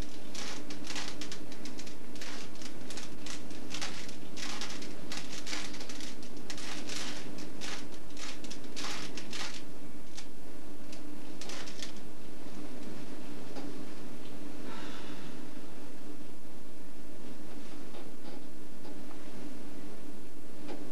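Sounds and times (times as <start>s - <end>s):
puzzle cube clicking turns: 0.0s - 10.3s, 10.9s - 12.0s
steady low hum: 0.0s - 20.9s.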